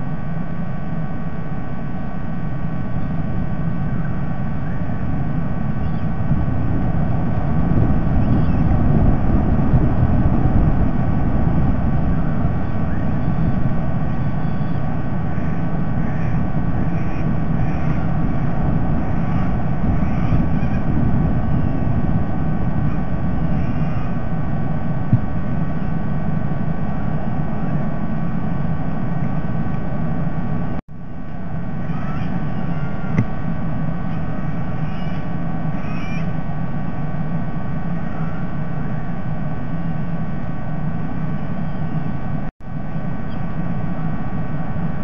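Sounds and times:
faint electrical hum: 0.0s - 45.0s
low outdoor rumble: 0.0s - 45.0s
faint high chirps: 12.6s - 14.9s.

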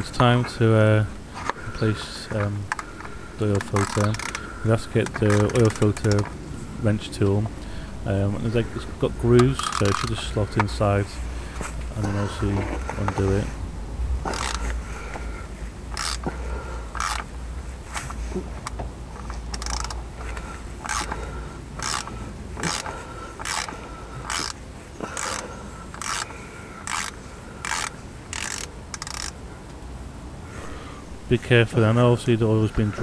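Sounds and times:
ratchet clicking: 2.7s - 6.3s, 9.4s - 10.8s, 14.2s - 14.8s, 15.9s - 16.3s, 16.9s - 17.3s, 18.6s - 29.4s.

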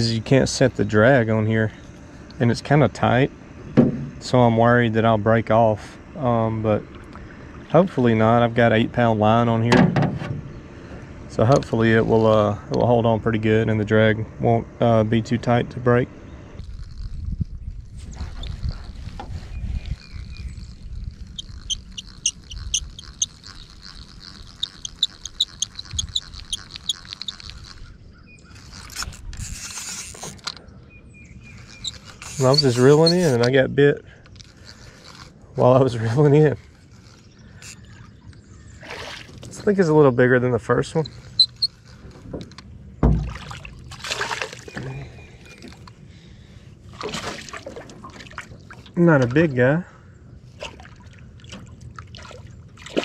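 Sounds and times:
thump: 3.8s - 4.1s, 9.7s - 10.4s, 43.0s - 43.4s
fishing reel squeaking: 16.6s - 38.8s, 40.6s - 42.6s
fish splashing at water surface: 43.1s - 44.8s, 46.9s - 49.0s.

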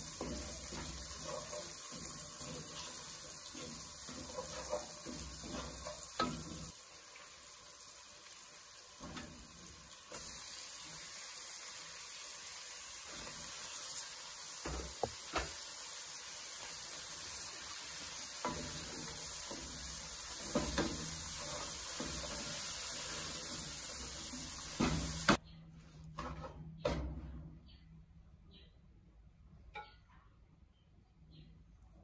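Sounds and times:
food sizzling in oil: 0.0s - 25.4s
spatula stirring greens: 0.0s - 25.4s.

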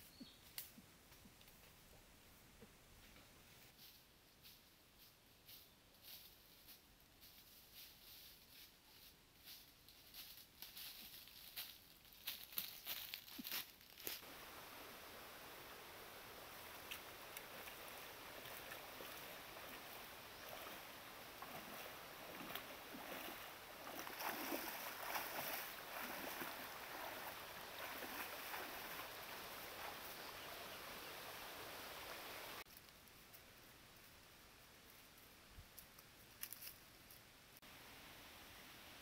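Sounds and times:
flowing water rushing: 14.2s - 32.6s
water splashing from wading: 16.8s - 30.4s.

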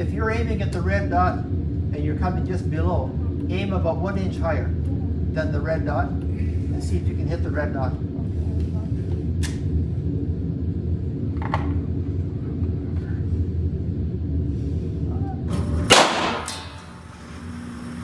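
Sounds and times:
steady low hum: 0.0s - 18.0s
pistol shots: 15.9s - 16.7s.

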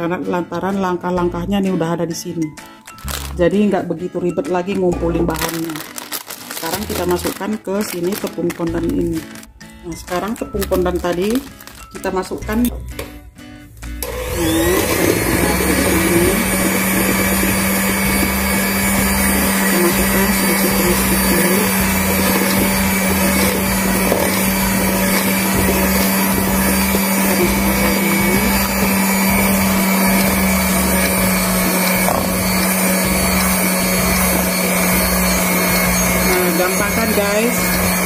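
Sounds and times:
electric hand mixer humming: 14.0s - 38.0s.

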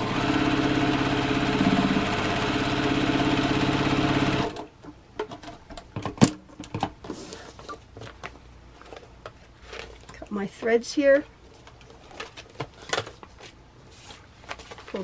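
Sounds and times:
sewing machine stitching: 0.0s - 4.7s
paper rustling: 7.1s - 10.7s, 11.4s - 15.0s.

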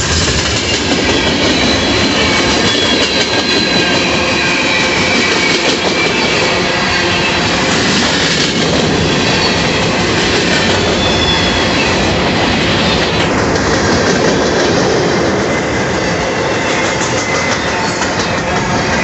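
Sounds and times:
freight train wheels rumbling: 0.0s - 19.0s
high wheel squeals: 0.6s - 13.2s, 15.4s - 19.0s.

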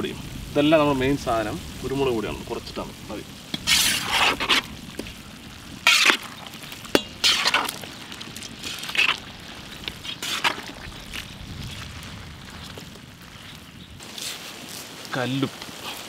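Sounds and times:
fish frying in a pan: 0.0s - 16.0s
spatula scraping a pan: 3.5s - 5.1s, 5.8s - 11.2s
metal clink on a pan: 7.0s - 7.4s.

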